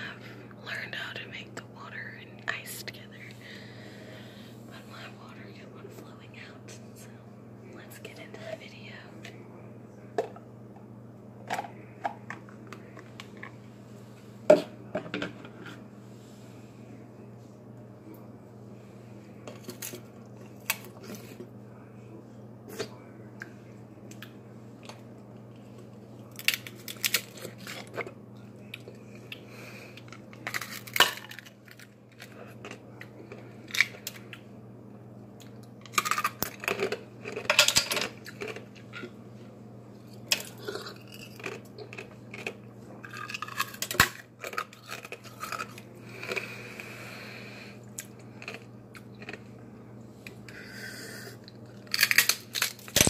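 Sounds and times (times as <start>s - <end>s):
ice being chewed: 30.0s - 34.4s, 35.4s - 39.2s, 40.0s - 46.9s, 48.0s - 49.6s.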